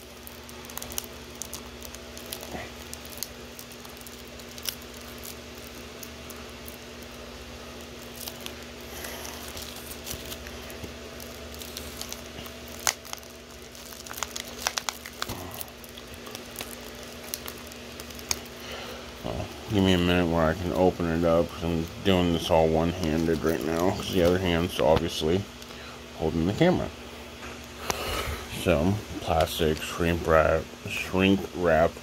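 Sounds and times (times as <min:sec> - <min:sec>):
low hum: 0:00.0 - 0:31.2
fingernail scratching plastic wrap: 0:08.0 - 0:18.5.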